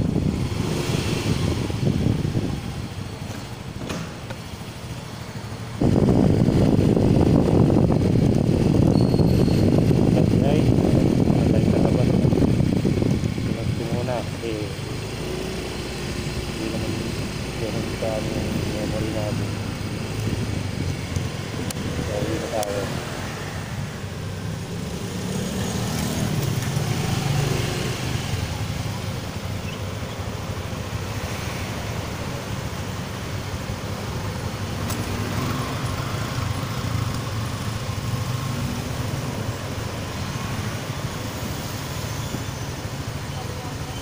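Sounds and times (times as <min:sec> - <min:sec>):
wind rumble: 0:00.0 - 0:03.2, 0:05.4 - 0:29.4
motorcycle engine: 0:00.0 - 0:44.0
passing cars: 0:00.0 - 0:44.0.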